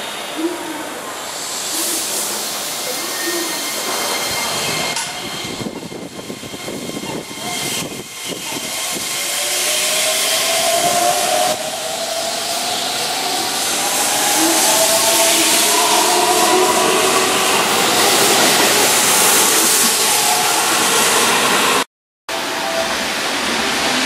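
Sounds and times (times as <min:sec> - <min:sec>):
electric train rolling past: 0:00.0 - 0:24.0
rising train drive whine: 0:00.0 - 0:24.0
wind noise on microphone: 0:04.3 - 0:09.2.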